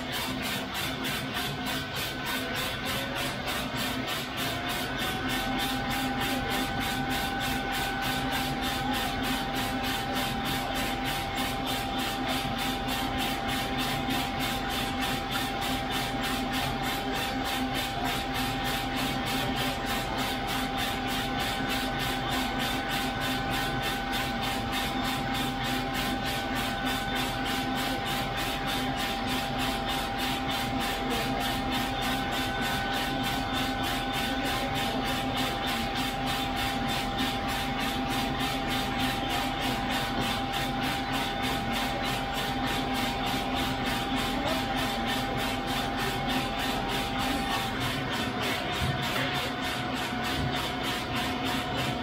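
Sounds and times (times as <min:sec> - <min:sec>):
steady machine whine: 0:00.0 - 0:52.0
steady mechanical noise: 0:00.0 - 0:52.0.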